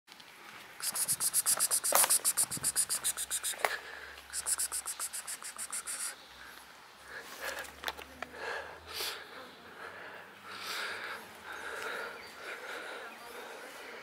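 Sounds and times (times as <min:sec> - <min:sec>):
cricket chirping: 0:00.8 - 0:03.7, 0:04.3 - 0:06.2.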